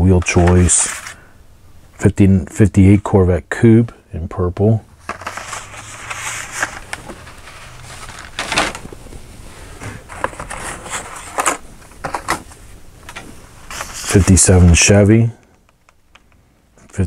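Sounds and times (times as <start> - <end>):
card and plastic packaging rustling: 0.1 - 1.2, 5.0 - 15.0.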